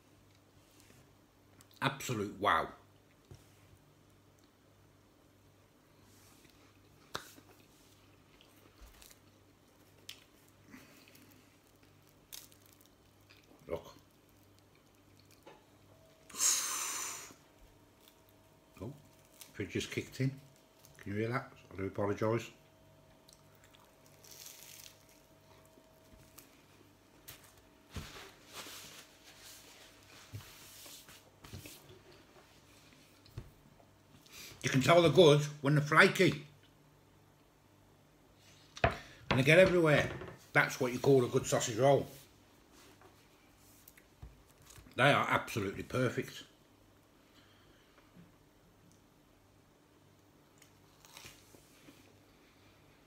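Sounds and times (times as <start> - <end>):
low steady hum: 0.0 - 53.0
soft chewing crunches: 6.2 - 15.9, 17.9 - 19.6, 23.0 - 27.7, 43.6 - 45.0, 50.5 - 52.2.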